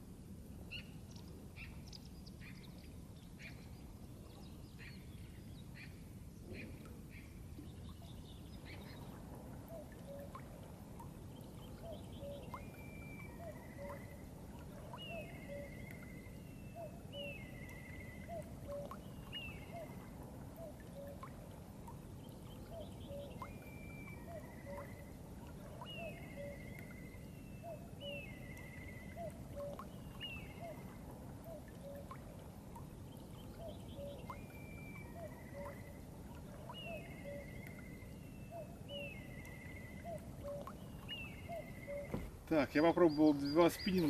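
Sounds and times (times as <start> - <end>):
bird song with buzzy trill: 25.8 - 30.9, 36.6 - 44.0
short low bird calls: 33.5 - 44.0.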